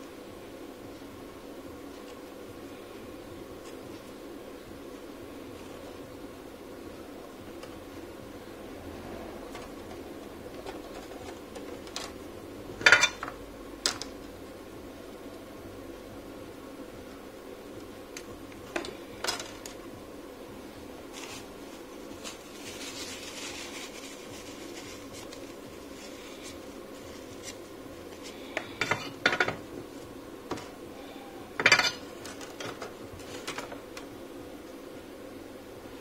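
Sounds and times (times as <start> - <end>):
soldering iron wiped on tissue: 20.8 - 28.7.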